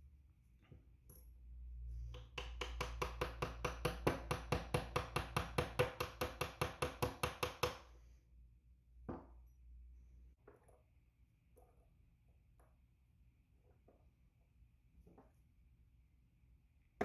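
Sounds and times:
hammer tapping metal pin: 2.1s - 7.8s.

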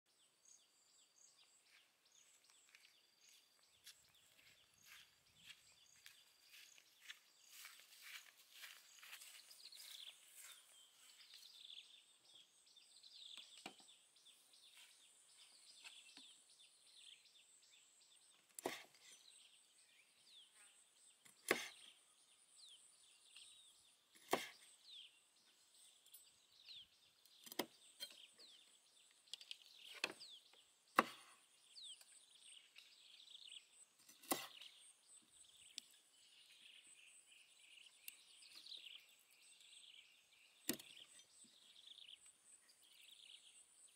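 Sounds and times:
birds chirping: 0.1s - 43.9s
cleaver chopping on wooden board: 21.3s - 21.8s, 24.2s - 24.6s, 30.9s - 31.4s, 34.1s - 34.7s.

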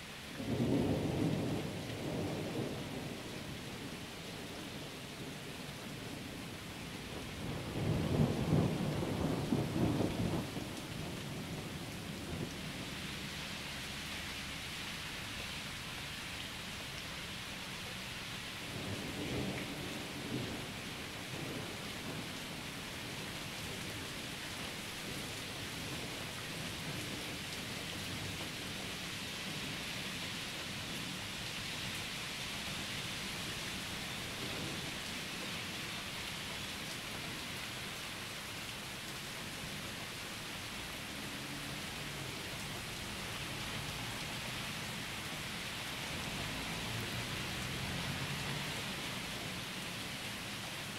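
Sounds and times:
steady rain: 0.0s - 50.9s
low rolling thunder: 0.4s - 5.4s, 7.1s - 12.8s, 18.7s - 29.8s.

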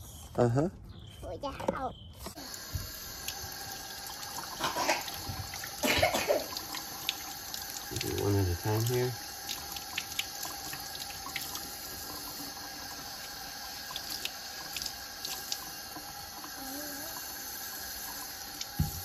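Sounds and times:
small ticks and splashes: 2.3s - 19.0s
tap running into a sink: 2.4s - 12.7s, 18.0s - 19.0s.

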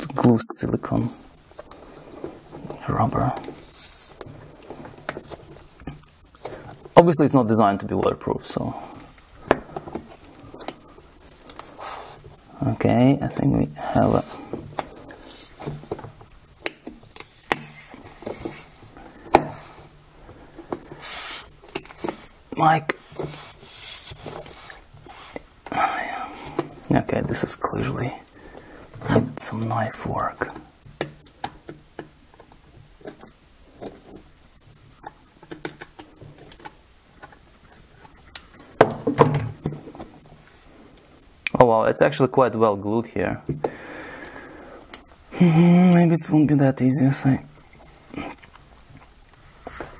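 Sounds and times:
rubber rubbing scrape: 1.7s - 5.5s, 17.2s - 18.9s, 20.8s - 25.5s.

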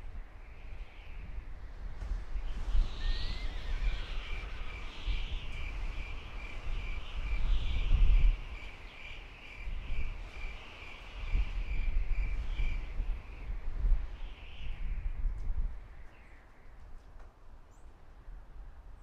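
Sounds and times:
insect hiss: 2.2s - 12.9s
rising bird whistle: 2.4s - 8.8s.

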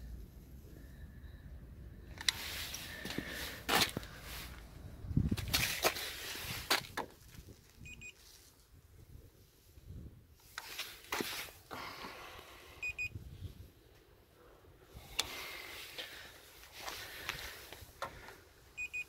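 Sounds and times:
electronic beeps: 7.8s - 8.2s, 12.8s - 13.1s.

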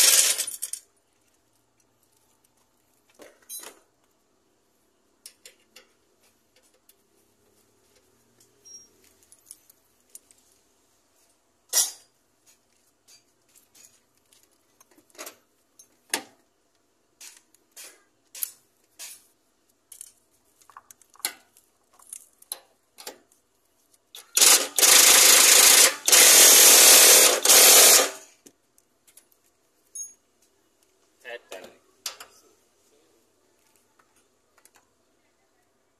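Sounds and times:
pneumatic wrench running: 0.0s - 0.7s, 24.2s - 28.3s.

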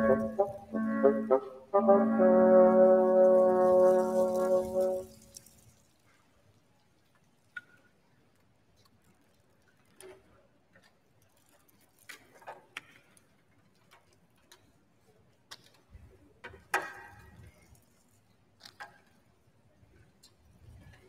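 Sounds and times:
woodwind instruments clicking: 0.0s - 5.4s.

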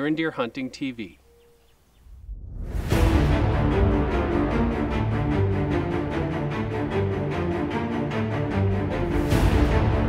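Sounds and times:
tv theme music with steady beat: 2.3s - 10.0s.

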